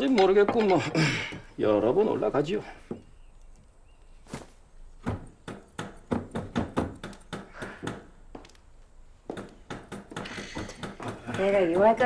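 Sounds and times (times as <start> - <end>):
knives knocking on wooden boards: 5.0 - 8.6, 9.3 - 12.0.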